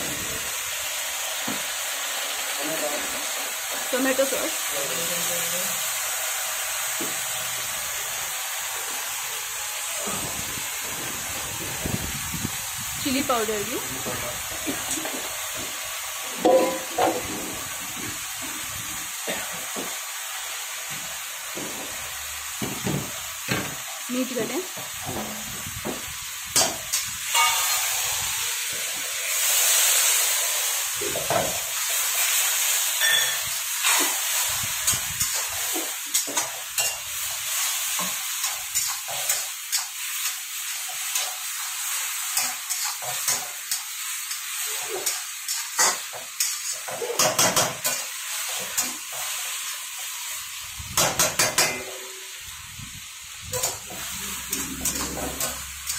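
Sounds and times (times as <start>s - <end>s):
food sizzling in a wok: 0.0s - 55.9s
metal spatula scraping a wok: 53.5s - 55.9s.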